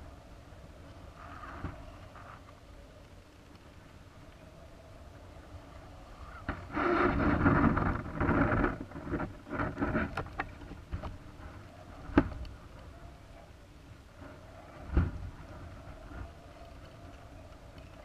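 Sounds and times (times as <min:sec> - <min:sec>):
wind buffeting microphone: 0:04.0 - 0:18.0.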